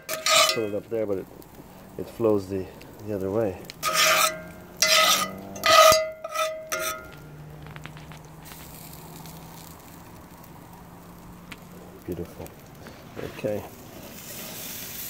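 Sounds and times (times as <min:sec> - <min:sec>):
metal tongs clanking on grate: 0:00.0 - 0:00.9, 0:03.8 - 0:07.2
butter sizzling: 0:00.0 - 0:15.0.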